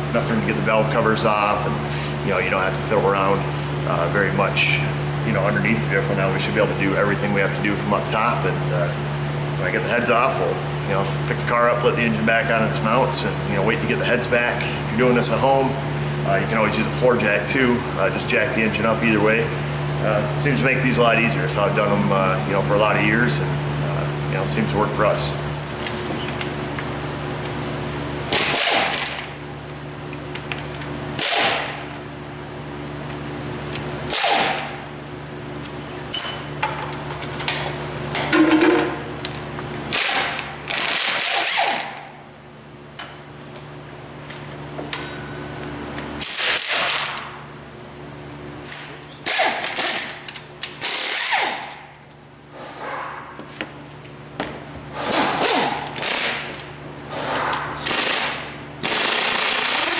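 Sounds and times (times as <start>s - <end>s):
pneumatic ratchet bursts: 28.3s - 29.2s, 31.2s - 31.7s, 34.1s - 34.6s, 39.9s - 41.9s, 49.2s - 50.1s, 50.8s - 51.7s, 57.1s - 59.9s.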